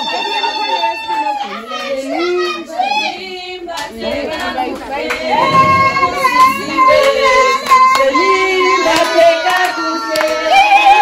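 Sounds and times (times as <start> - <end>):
women singing together: 0.0 - 11.0
hand claps: 8.9 - 10.4.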